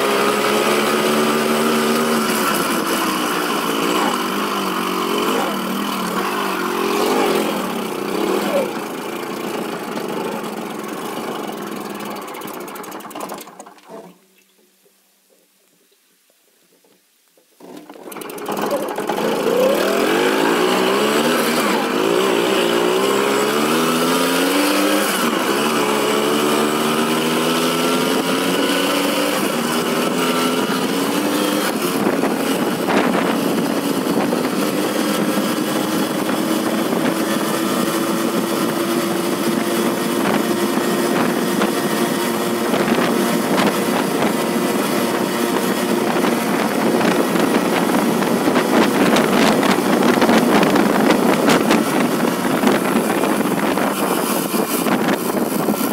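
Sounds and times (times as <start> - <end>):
moped engine accelerating: 0.0 - 14.0, 17.6 - 55.9
wind buffeting: 29.8 - 55.9.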